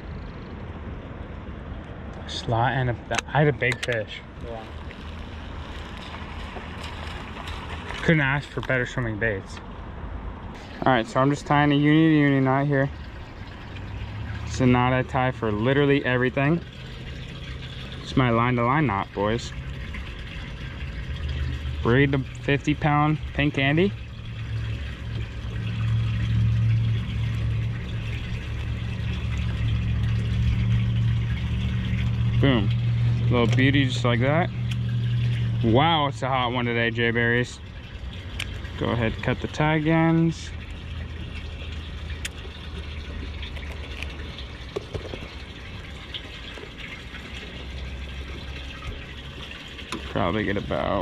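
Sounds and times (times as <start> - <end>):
boat motor hum: 0.0 - 51.0
steady low rumble: 0.0 - 51.0
water noise: 0.0 - 51.0
waves lapping against boat hull: 3.0 - 8.8.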